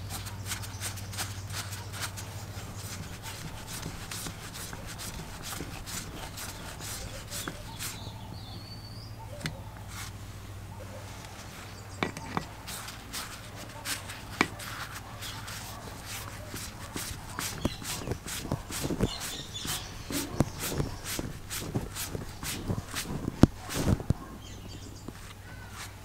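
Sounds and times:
screwdriver clicking and scraping: 12.0s - 24.0s.

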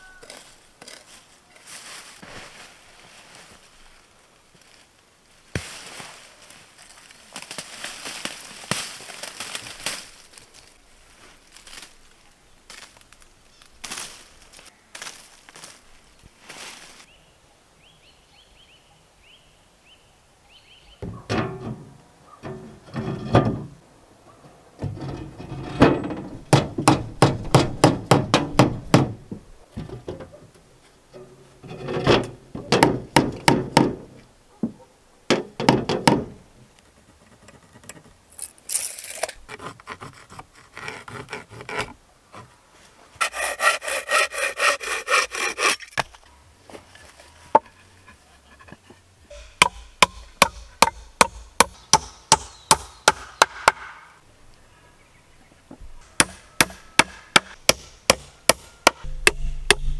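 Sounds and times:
hand saw cutting wood: 39.5s - 41.9s, 43.2s - 46.0s
rhythmic strokes on wood: 43.2s - 45.9s.

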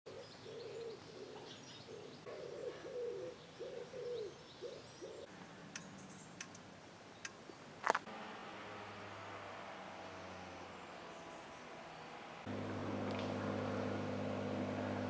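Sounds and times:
pigeon cooing: 0.1s - 5.3s
small birds chirping: 0.1s - 8.1s, 10.1s - 15.0s
sharp clicks: 5.7s - 6.6s.

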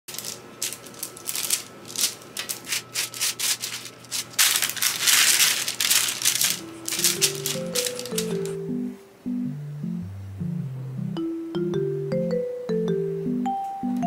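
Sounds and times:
baking paper crinkling: 0.1s - 8.6s.

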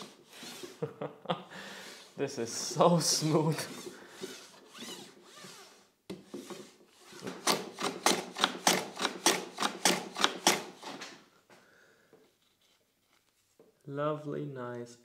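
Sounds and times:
hand plane cutting strokes: 0.0s - 0.8s, 3.3s - 11.1s
hand plane sliding on ramp: 3.3s - 7.4s.

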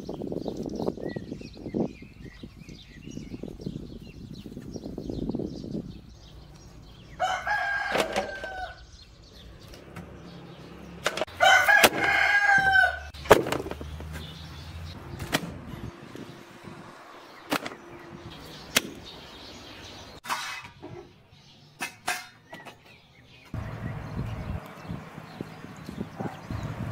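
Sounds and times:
rooster crowing: 7.1s - 8.9s, 11.4s - 13.1s.

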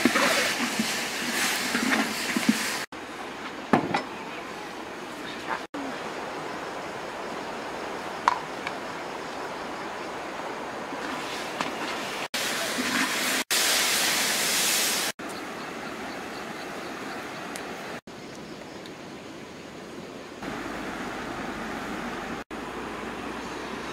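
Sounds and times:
fish sizzling in sauce: 12.0s - 15.2s.

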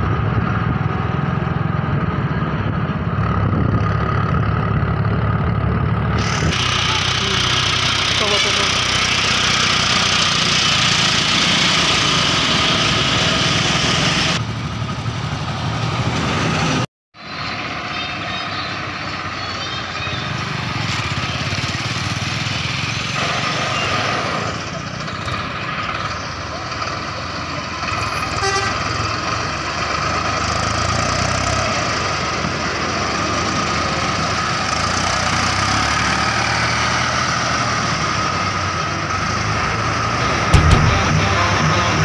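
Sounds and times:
road traffic: 0.0s - 42.0s
tractor engine under load: 0.1s - 16.4s, 37.5s - 42.0s
vehicle horn toot: 28.3s - 28.8s, 40.2s - 42.0s.

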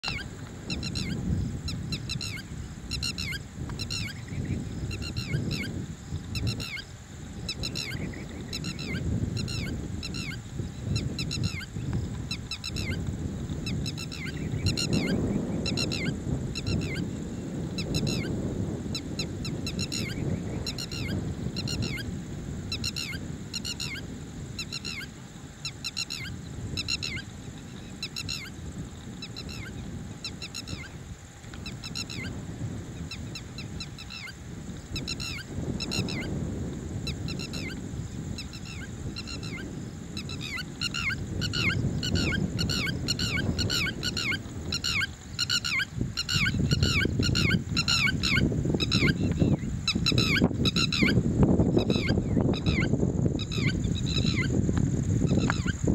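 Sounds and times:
lapwing calling: 0.0s - 17.1s, 22.7s - 28.6s, 29.2s - 31.0s, 31.6s - 32.4s, 33.0s - 36.4s, 37.1s - 37.8s, 38.4s - 51.2s, 51.8s - 54.6s, 55.2s - 55.8s.

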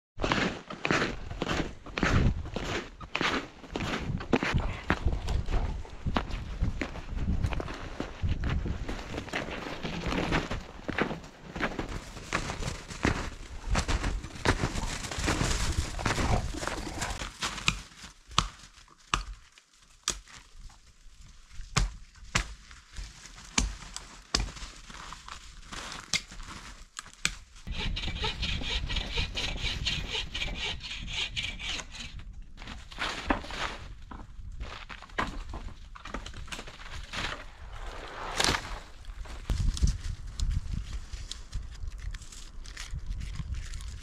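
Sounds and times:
snowshoes crunching through snow: 0.2s - 18.2s
branches snapping: 12.4s - 20.7s, 21.7s - 27.4s, 38.3s - 44.0s.

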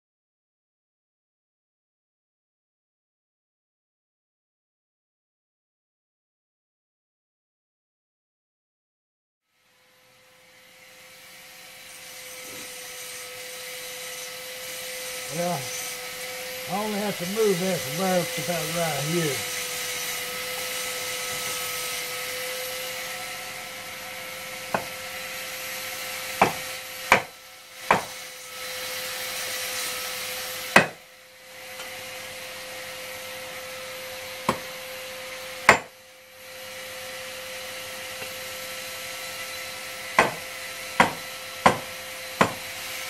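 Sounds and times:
steady hum: 15.2s - 19.6s.

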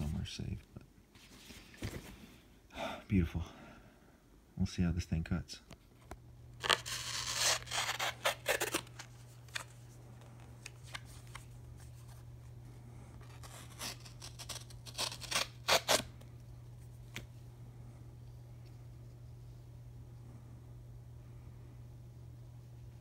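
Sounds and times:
knife slicing through paper card: 6.6s - 9.6s, 13.2s - 16.1s.

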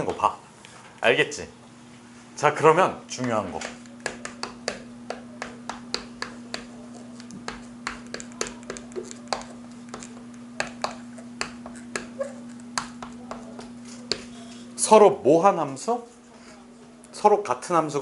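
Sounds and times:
steady low hum: 0.0s - 18.0s
chalk tapping on chalkboard: 3.2s - 14.3s.

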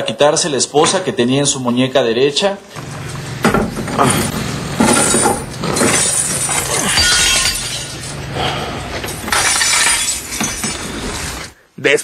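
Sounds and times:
window glass smashing: 3.5s - 11.6s.

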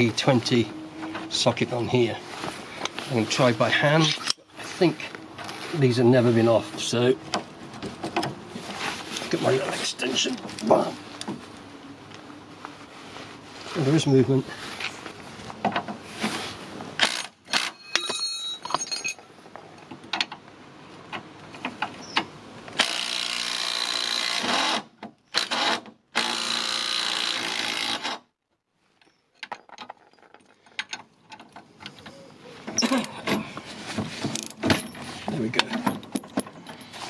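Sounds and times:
tools clinking on metal: 17.6s - 19.3s.

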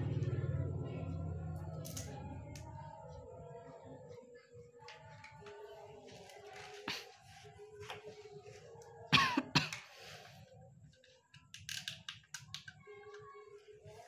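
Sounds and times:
plastic clicks: 11.3s - 13.2s.

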